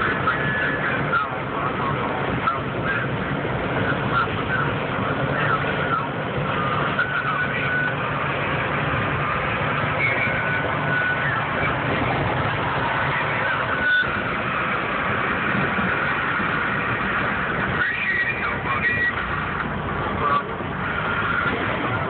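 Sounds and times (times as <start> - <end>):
truck engine and road noise: 0.0 - 22.0.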